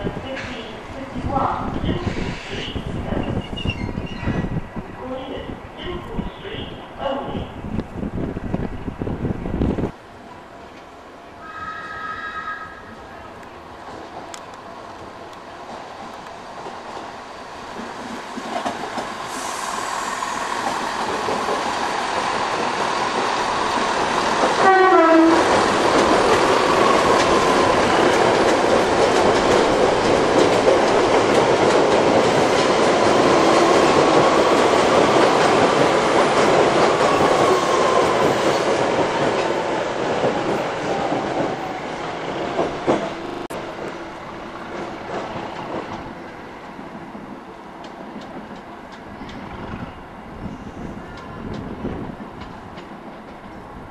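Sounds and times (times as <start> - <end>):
passenger train passing: 0.0 - 53.9
train horn: 11.4 - 13.0, 24.6 - 25.5
wheels clacking over rail joints: 20.5 - 44.0.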